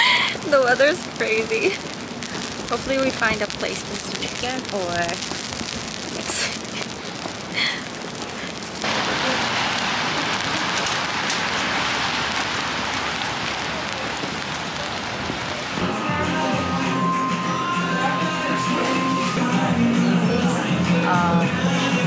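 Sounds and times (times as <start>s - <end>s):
rain falling on street: 0.0s - 22.0s
music: 15.8s - 22.0s.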